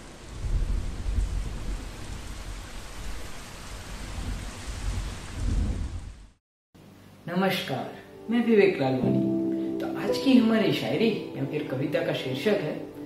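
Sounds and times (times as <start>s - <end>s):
heavy rain: 0.0s - 6.4s
rolling thunder: 0.0s - 6.4s.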